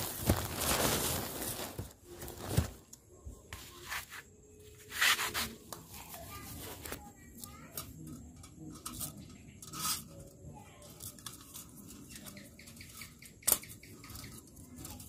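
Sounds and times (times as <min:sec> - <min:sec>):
brief scrape: 0:04.8 - 0:05.6.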